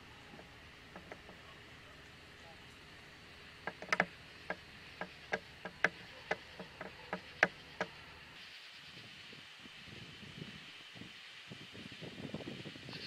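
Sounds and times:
insect chorus: 0.0 - 13.0
sharp clicks: 0.3 - 2.8, 3.6 - 8.1.

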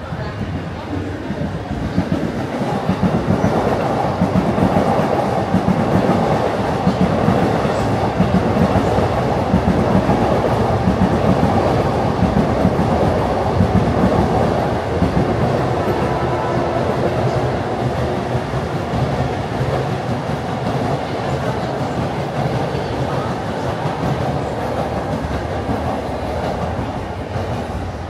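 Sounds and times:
train rumble: 0.0 - 28.0
train wheels clattering on rails: 0.0 - 28.0.

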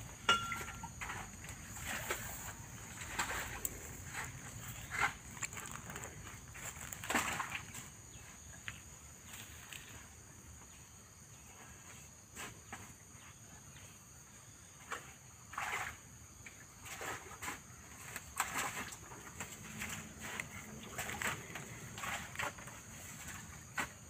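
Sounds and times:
high insect drone: 0.0 - 14.7.

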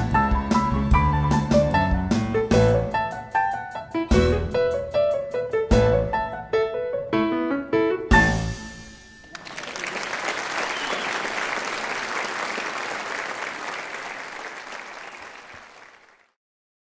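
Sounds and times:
audience applauding: 9.2 - 16.4.

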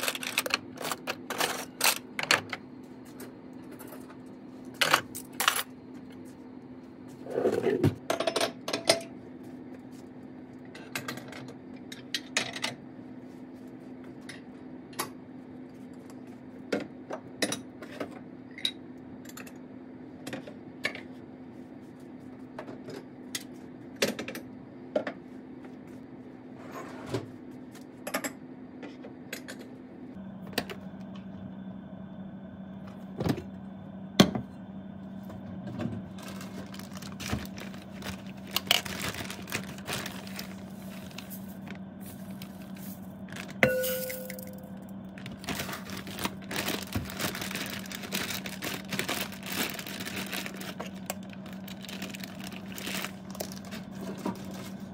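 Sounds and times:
steady hum: 29.8 - 54.9.

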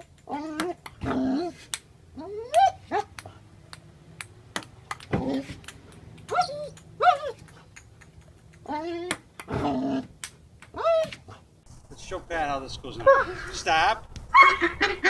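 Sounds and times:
short rising vocal calls: 11.7 - 15.0.

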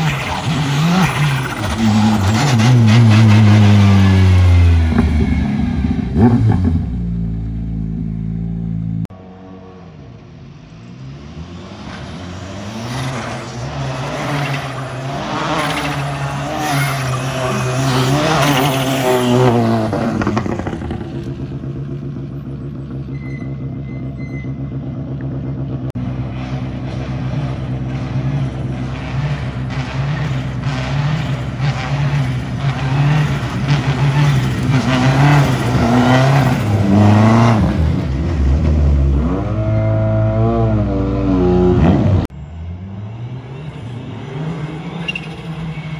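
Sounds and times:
rally car accelerating: 0.0 - 24.0, 24.7 - 45.9
rally car engines revving: 0.0 - 45.9.

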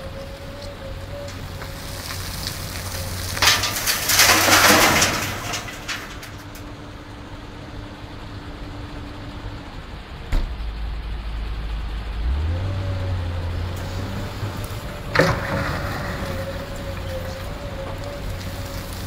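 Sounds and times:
excavator diesel engine running: 0.0 - 19.0
dirt pouring into truck bed: 1.4 - 6.6, 14.0 - 19.0.

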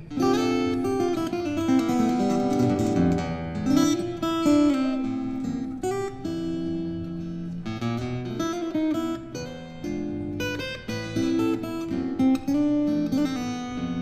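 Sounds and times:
fingerstyle acoustic guitar: 0.0 - 14.0.

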